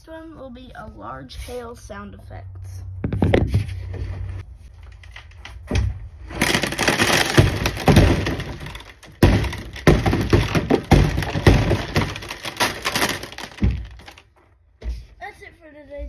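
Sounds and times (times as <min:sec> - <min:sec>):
large hailstones clattering: 0:06.4 - 0:14.2.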